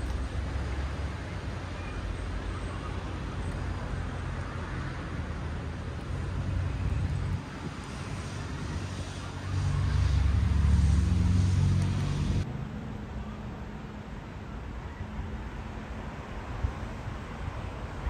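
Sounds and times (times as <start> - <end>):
street traffic rumble: 0.0 - 18.0
vehicle passing close: 6.1 - 13.0.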